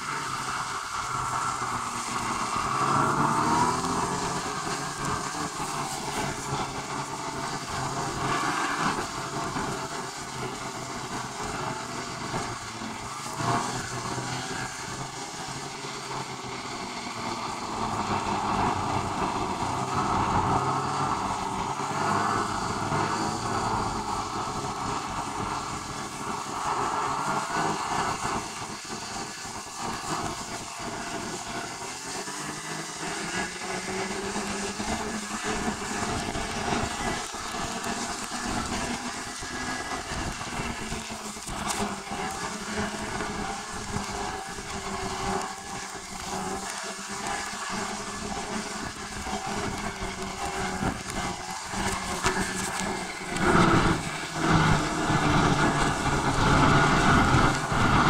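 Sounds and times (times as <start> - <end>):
low hum rising in pitch: 0.0 - 8.3, 9.0 - 29.8
vehicle running: 0.0 - 58.0.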